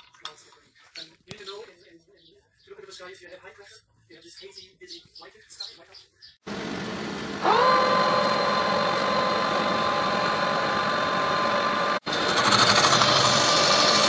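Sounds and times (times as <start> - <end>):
lathe motor whine: 6.5 - 14.0
lathe tool cutting steel: 6.5 - 14.0.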